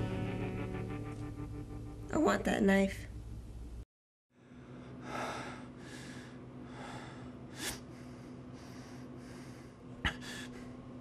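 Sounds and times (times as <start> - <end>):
low electrical hum: 0.0 - 3.8, 4.4 - 11.0
person breathing heavily: 4.4 - 10.8.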